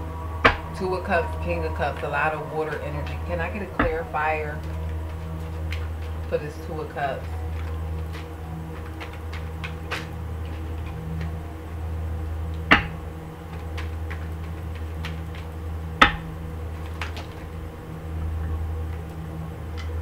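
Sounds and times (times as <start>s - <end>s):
steady low hum: 0.0s - 20.0s
sharp knocks: 12.7s - 13.0s, 13.6s - 16.4s.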